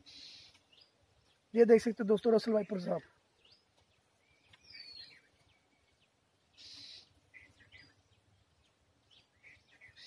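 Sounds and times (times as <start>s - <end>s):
faint bird calls: 0.0s - 1.4s, 4.2s - 10.0s.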